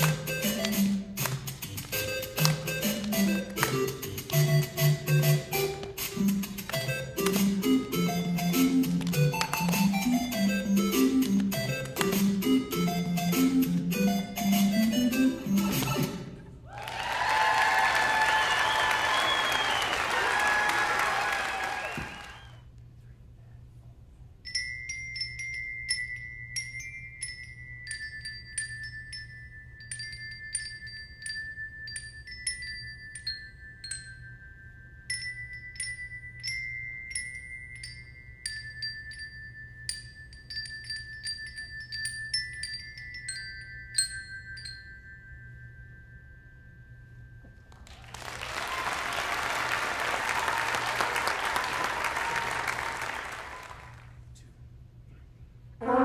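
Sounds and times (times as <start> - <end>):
audience applause: 16.7 - 22.6, 47.9 - 54.2
glockenspiels playing slow tune: 24.4 - 47.7.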